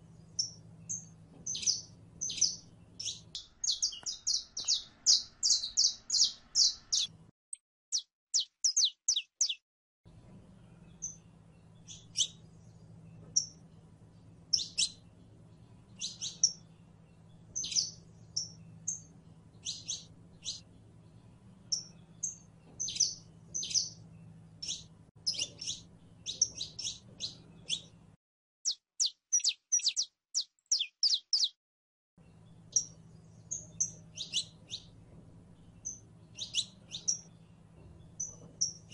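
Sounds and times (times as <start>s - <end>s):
finch chirping and trilling: 0.4s - 7.1s, 7.9s - 9.6s, 10.8s - 13.8s, 14.5s - 28.0s, 28.7s - 31.6s, 32.3s - 35.0s, 35.6s - 38.9s
faint low hum: 10.1s - 28.2s.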